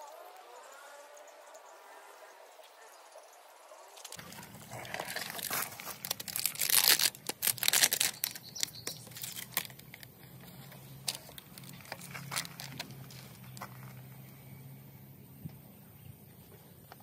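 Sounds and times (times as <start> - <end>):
plastic packaging crinkling: 4.1 - 14.0.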